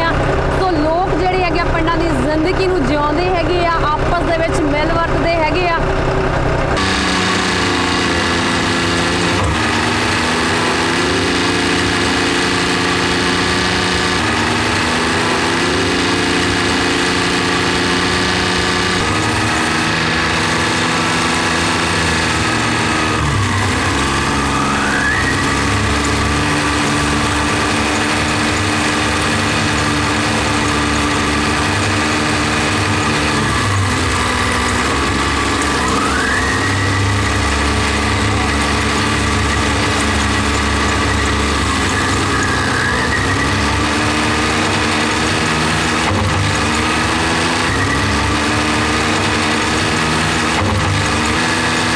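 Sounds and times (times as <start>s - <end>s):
tractor diesel engine running: 0.0s - 51.9s.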